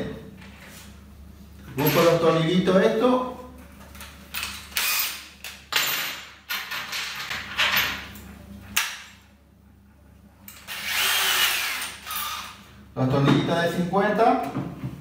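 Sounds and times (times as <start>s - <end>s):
tools and screws rattling: 3.8s - 9.2s
drill chuck rasping: 10.7s - 12.6s.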